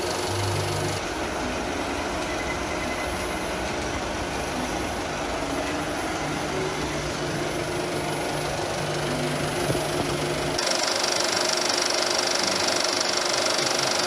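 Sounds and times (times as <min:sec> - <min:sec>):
film projector running: 0:00.0 - 0:02.4, 0:06.2 - 0:14.0.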